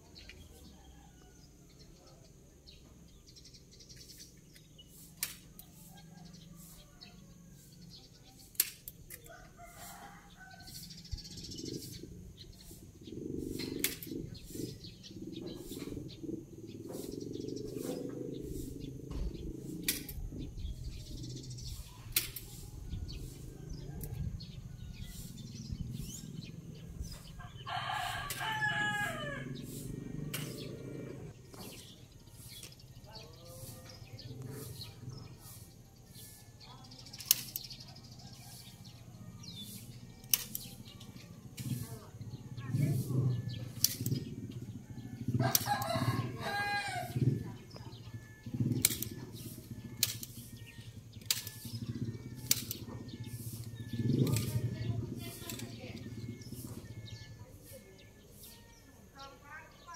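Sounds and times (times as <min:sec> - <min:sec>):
outdoor background noise: 0:00.0 - 0:59.9
sharp clicks: 0:08.5 - 0:09.3, 0:37.1 - 0:37.8, 0:43.8 - 0:44.2, 0:48.8 - 0:51.8, 0:52.4 - 0:52.9
rooster crowing: 0:09.3 - 0:11.0, 0:27.4 - 0:31.3, 0:45.0 - 0:47.2.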